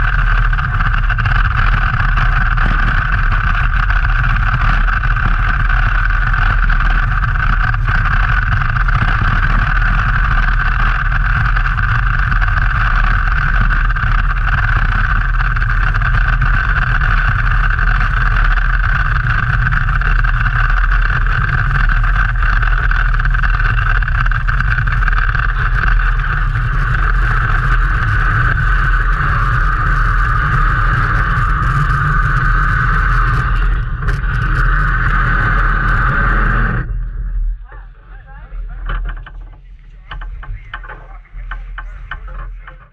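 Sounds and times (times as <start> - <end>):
sled runners rumbling on ice: 0.0 - 42.9
wind: 0.0 - 42.9.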